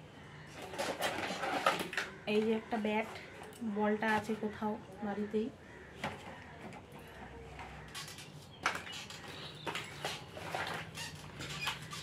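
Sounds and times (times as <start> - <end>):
plastic toys clattering: 0.6 - 4.2, 6.0 - 12.0.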